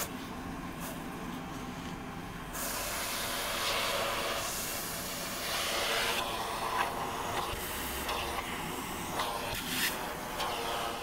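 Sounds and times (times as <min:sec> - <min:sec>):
handheld vacuum cleaner hissing: 0:02.5 - 0:11.0.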